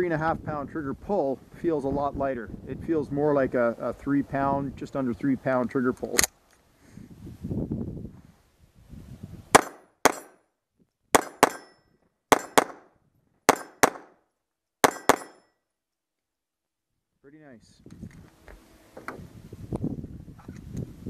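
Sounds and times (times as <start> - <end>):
pistol shots: 9.6 - 10.4, 11.1 - 11.7, 12.3 - 12.9, 13.5 - 14.2, 14.8 - 15.4.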